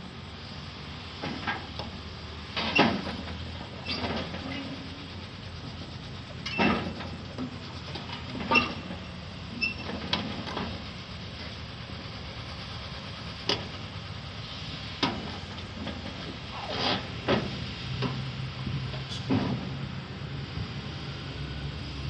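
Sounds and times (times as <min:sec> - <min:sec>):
excavator diesel engine running: 0:00.0 - 0:22.0
metallic clanks of tracks: 0:01.0 - 0:20.7
brief squeaks from tracks: 0:02.6 - 0:05.2, 0:06.4 - 0:11.6, 0:16.0 - 0:18.2, 0:19.0 - 0:19.6.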